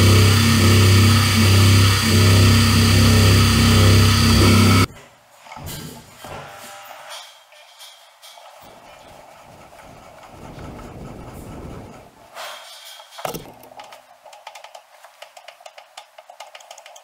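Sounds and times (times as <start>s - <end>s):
metal parts scraping and shuffling: 5.0s - 11.6s, 12.3s - 14.0s.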